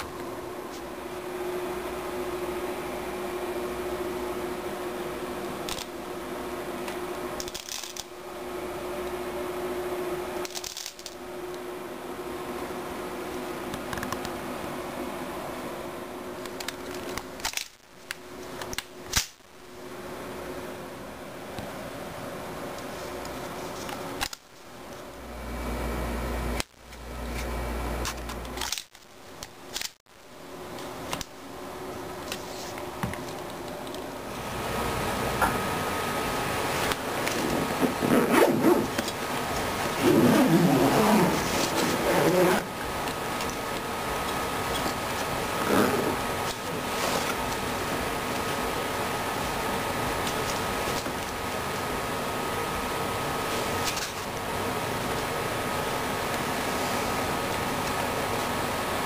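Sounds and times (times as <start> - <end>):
steady single-tone hum: 0.0 - 59.0
rustling scraping handling noise: 36.8 - 42.6.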